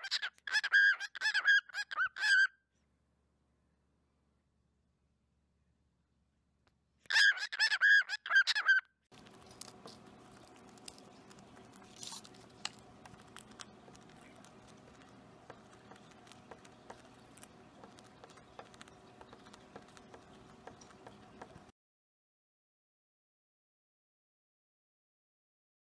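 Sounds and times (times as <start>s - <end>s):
cockatiel shrill calls: 0.0s - 2.5s, 7.1s - 8.8s
faint steady hum: 2.6s - 7.0s, 9.1s - 21.7s
beak pecking on wooden table: 12.7s - 21.7s.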